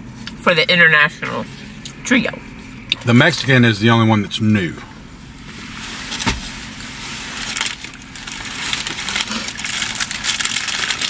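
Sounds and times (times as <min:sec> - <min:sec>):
low hum inside car: 0:00.0 - 0:11.0
food wrappers rustling: 0:05.6 - 0:11.0.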